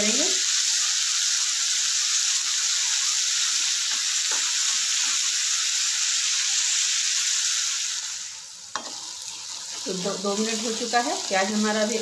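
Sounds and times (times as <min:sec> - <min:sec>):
onions sizzling in hot oil: 0:00.0 - 0:12.0
wooden spatula scraping: 0:08.8 - 0:11.6.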